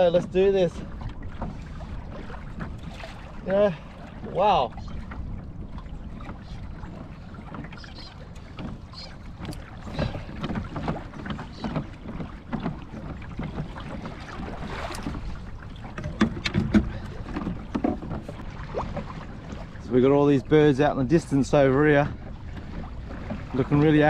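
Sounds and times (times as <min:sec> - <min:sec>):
water lapping against hull: 0:00.0 - 0:24.0
small knocks and clicks: 0:08.4 - 0:11.9.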